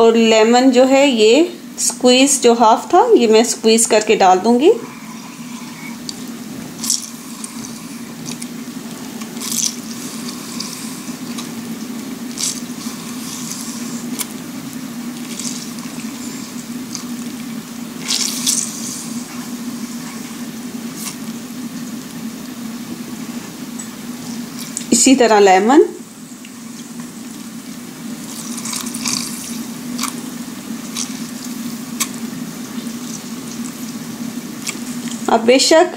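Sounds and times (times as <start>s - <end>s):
steady low hum: 0.0s - 35.9s
juice dripping and splashing into water: 5.6s - 24.9s, 26.1s - 35.3s.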